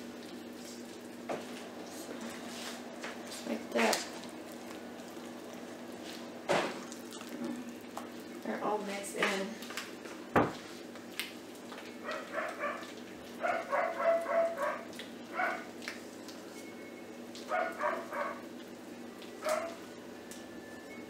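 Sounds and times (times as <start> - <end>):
small dog yapping: 12.0 - 15.7, 17.5 - 18.4, 19.4 - 19.8.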